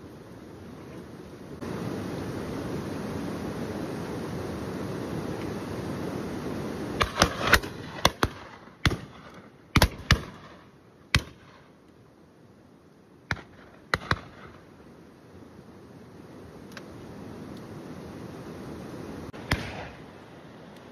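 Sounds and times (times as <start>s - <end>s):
shotguns firing: 7.0s - 11.6s, 13.3s - 14.6s, 19.4s - 20.1s.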